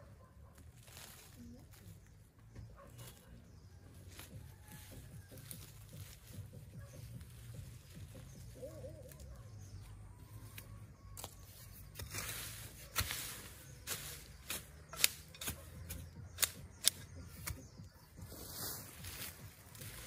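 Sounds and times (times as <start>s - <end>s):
hoe chopping into soil: 11.2s - 17.7s.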